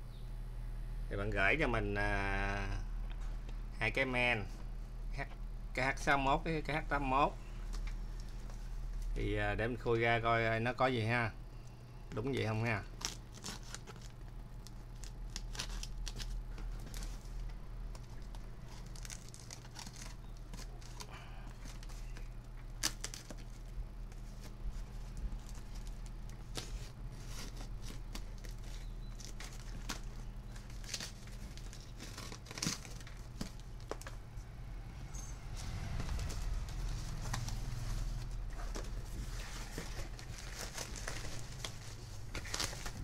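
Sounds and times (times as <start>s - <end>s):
steady low hum: 0.0s - 43.0s
plastic and cardboard crinkling: 12.6s - 34.2s, 35.6s - 43.0s
packing tape ripping: 12.9s - 17.1s, 18.2s - 23.6s, 25.4s - 34.1s.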